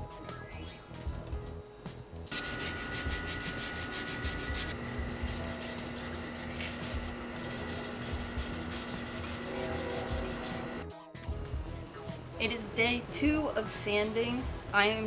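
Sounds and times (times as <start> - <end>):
sandpaper rubbing: 2.3 - 10.8.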